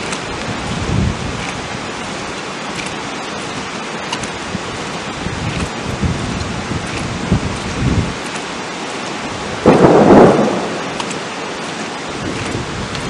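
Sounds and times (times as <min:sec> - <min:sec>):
rain: 0:00.0 - 0:13.0
wind: 0:00.0 - 0:13.0
thunder crack: 0:09.5 - 0:12.9.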